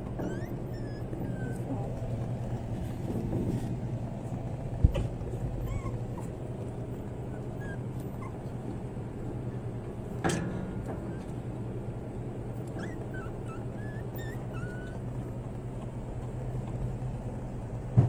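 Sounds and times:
puppy yelp: 0.0 - 2.2, 5.5 - 8.6, 12.6 - 16.8
puppies whimpering: 0.0 - 2.8, 5.2 - 9.9, 10.9 - 17.4.

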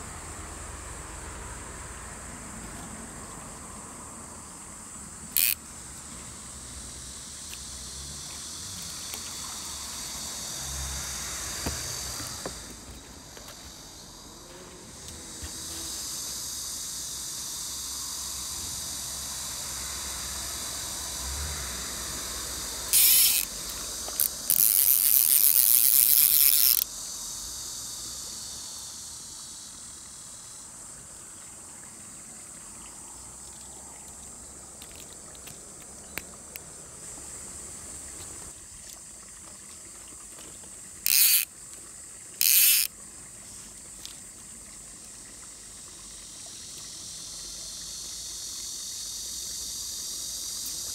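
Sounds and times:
insects buzzing: 0.0 - 50.9
fishing reel drag ratcheting: 5.3 - 5.7, 7.3 - 10.5, 22.8 - 26.9, 41.0 - 41.5, 42.4 - 42.9.

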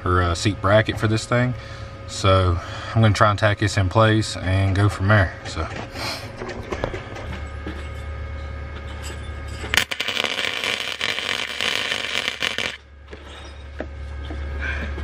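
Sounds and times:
steady low hum: 0.0 - 15.0
welding arc crackling: 9.7 - 12.9.

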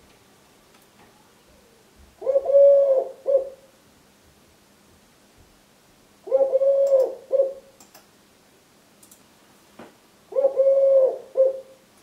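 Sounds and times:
dove cooing: 2.2 - 3.7, 6.2 - 7.7, 10.3 - 11.8.

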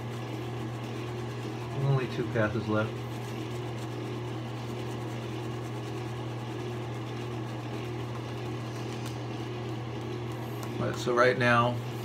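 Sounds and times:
shaving brush swishing lather: 0.0 - 9.5
low mechanical hum: 0.0 - 12.0.

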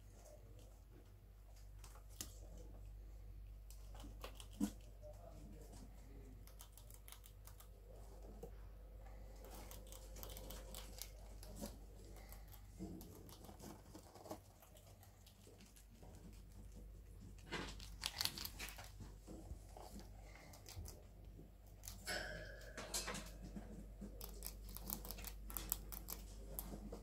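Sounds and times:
low steady hum: 0.0 - 27.0
rats scrabbling in bedding: 9.3 - 22.2.

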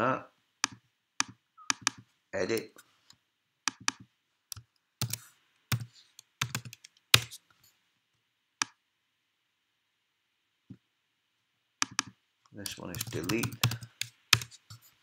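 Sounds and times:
computer keyboard keystrokes: 0.6 - 2.0, 3.7 - 7.3, 11.8 - 12.1, 12.7 - 14.5.

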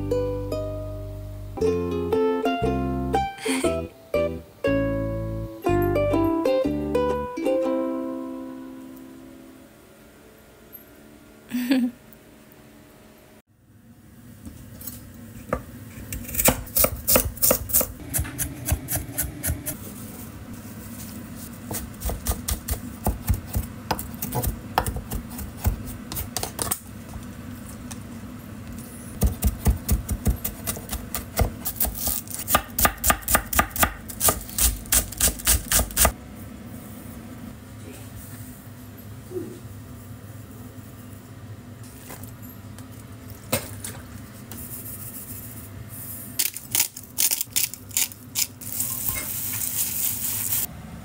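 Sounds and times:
knife chopping on wooden board: 21.7 - 26.7, 29.2 - 36.1.

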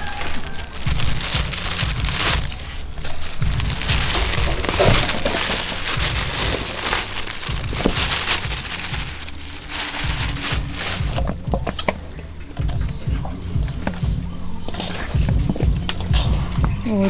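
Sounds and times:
plastic bag crinkling: 0.0 - 11.8.

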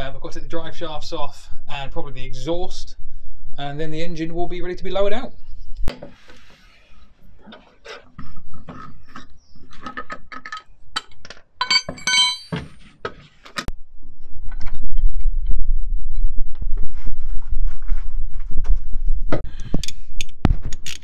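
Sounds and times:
metallic tool clinks: 11.6 - 12.6
low rumble: 13.7 - 19.4.

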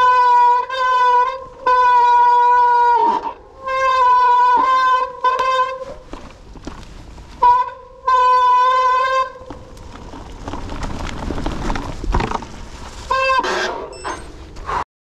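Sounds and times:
wind noise: 2.9 - 14.8
tyres rolling over dirt: 3.6 - 14.8
bike brakes squealing: 13.2 - 14.4.

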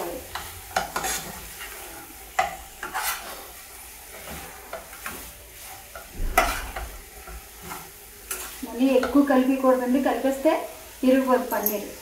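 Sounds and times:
low frying sizzle: 0.0 - 12.0
spoon scraping a steel pan: 0.3 - 9.2.

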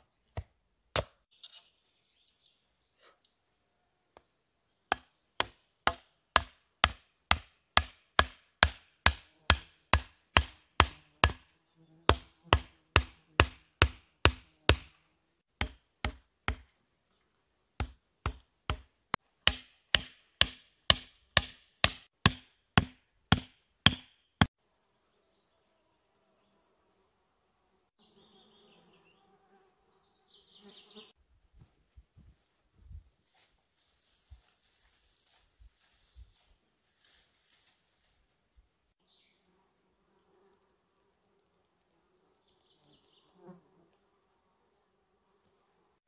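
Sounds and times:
hatchet hammering wooden stake: 0.3 - 1.3, 4.9 - 11.5, 12.1 - 16.8, 17.8 - 24.5.

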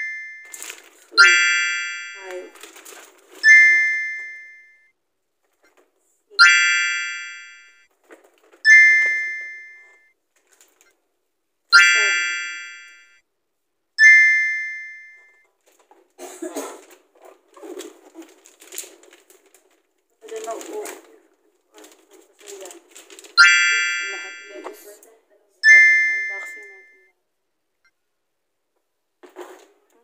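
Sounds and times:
bright chime tones: 0.0 - 2.5, 3.4 - 4.8, 6.4 - 7.8, 8.7 - 10.0, 11.8 - 13.2, 14.0 - 15.4, 23.4 - 24.9, 25.6 - 27.1
wrapping paper crinkling: 0.4 - 1.2, 2.5 - 3.4, 16.8 - 23.4.

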